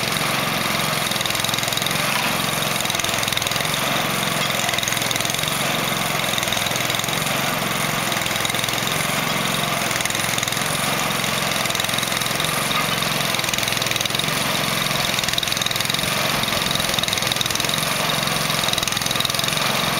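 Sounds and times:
mortar mixer engine running: 0.0 - 19.9.

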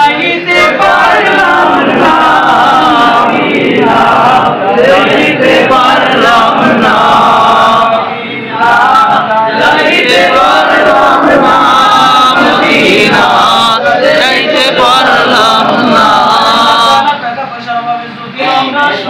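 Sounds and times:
men singing together: 0.0 - 17.2.

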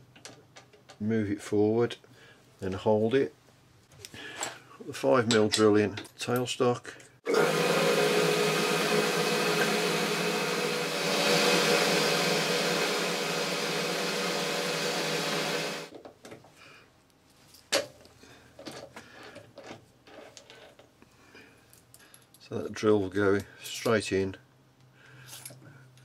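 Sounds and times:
lathe motor whine: 7.3 - 15.9.

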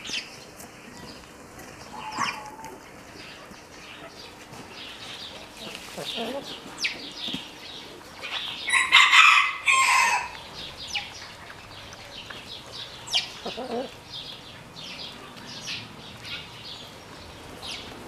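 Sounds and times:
chickens clucking and calling: 0.1 - 18.0
chicken squawk: 1.9 - 2.8, 8.7 - 10.4, 13.2 - 14.0.

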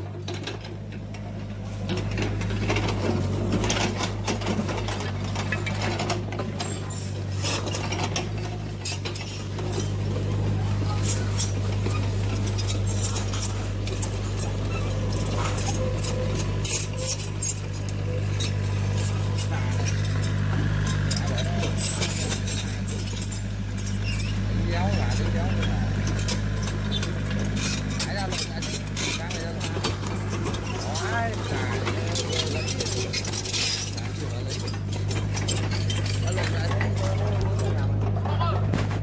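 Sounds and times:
gears clicking and scraping: 0.0 - 39.0
steady motor hum: 0.0 - 39.0.

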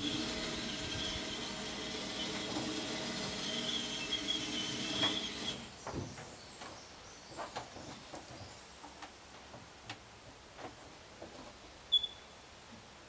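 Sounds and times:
winch motor whining: 0.0 - 5.7.

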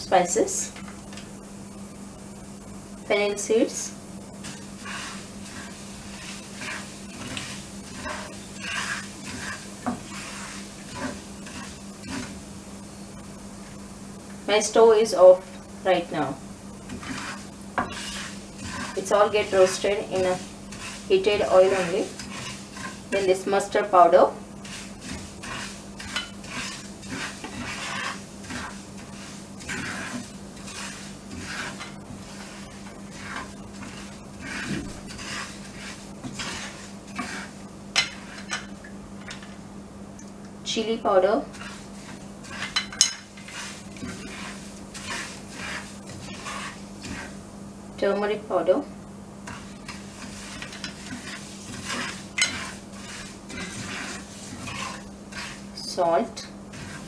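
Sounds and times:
steady low hum: 0.0 - 57.0
seeds sizzling in hot oil: 3.0 - 14.4, 16.4 - 38.8, 41.4 - 47.9, 49.1 - 57.0
wooden spatula scraping frying pan: 4.3 - 12.4, 16.8 - 39.4, 41.4 - 47.5, 49.4 - 57.0.

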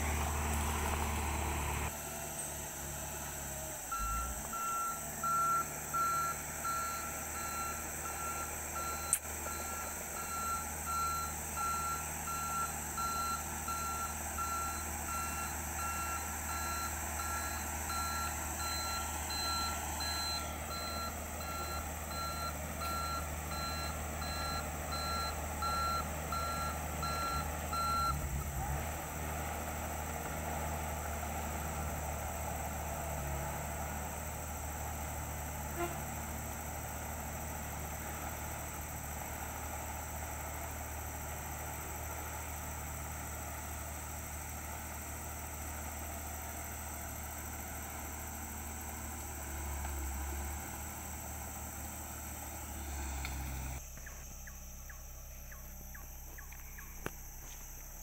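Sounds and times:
diesel engine running: 0.0 - 58.0
reverse alarm beeping: 3.9 - 28.3.

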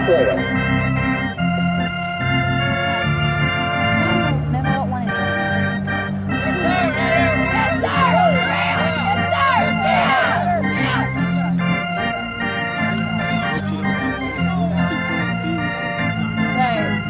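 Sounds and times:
electric organ playing chords: 0.0 - 17.0
voices rising: 6.3 - 12.4.

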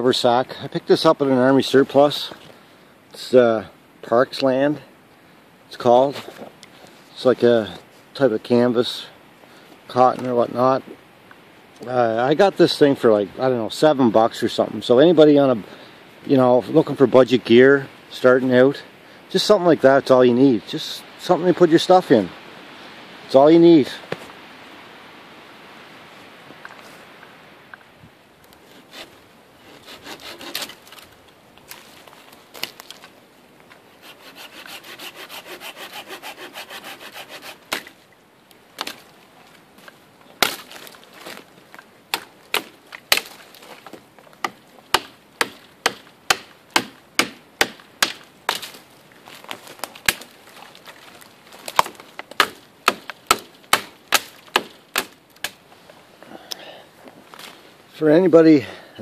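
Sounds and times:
knife sawing branches: 28.6 - 31.0, 34.0 - 37.9, 42.1 - 48.8, 49.4 - 55.6
knife chopping into wood: 44.4 - 48.8, 51.8 - 55.6.

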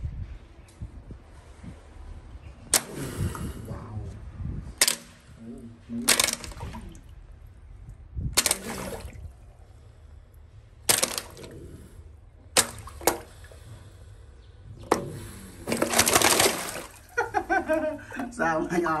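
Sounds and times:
crocodile jaws snapping: 2.7 - 3.6, 4.8 - 5.2, 6.0 - 7.0, 8.4 - 9.2, 10.8 - 11.9, 12.5 - 13.4, 14.8 - 17.0
water splash: 8.4 - 9.3, 12.5 - 13.5, 15.6 - 17.2.

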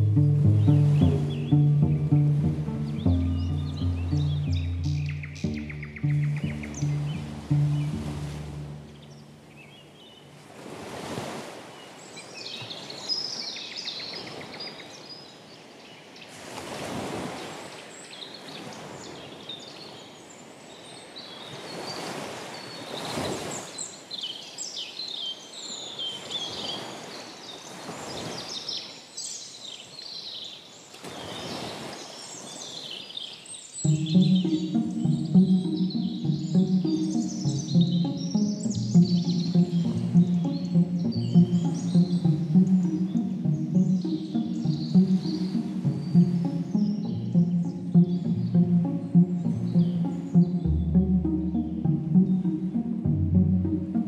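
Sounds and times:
small birds chirping: 2.7 - 8.0, 33.3 - 51.4
waves washing in and out: 6.1 - 24.2, 26.0 - 29.2, 30.9 - 33.0, 33.8 - 50.6.

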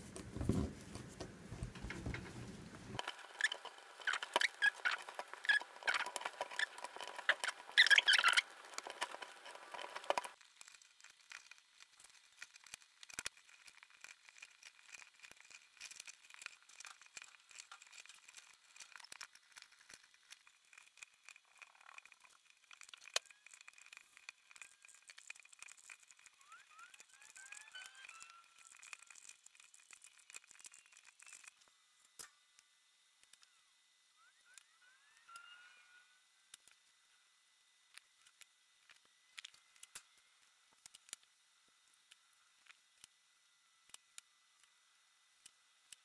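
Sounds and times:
cord rustling and squeaking: 0.0 - 31.7.

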